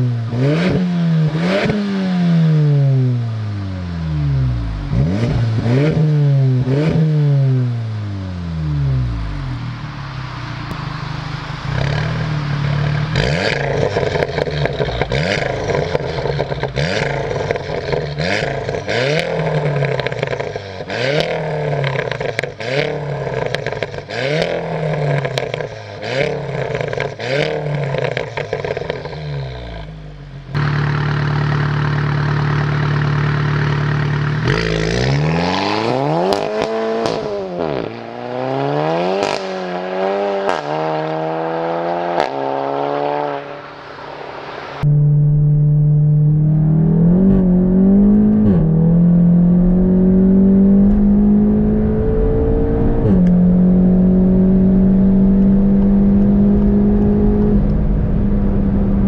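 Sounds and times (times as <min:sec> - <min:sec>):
exhaust crackles: 0:00.0 - 0:41.0
car engine revving: 0:00.0 - 0:59.0.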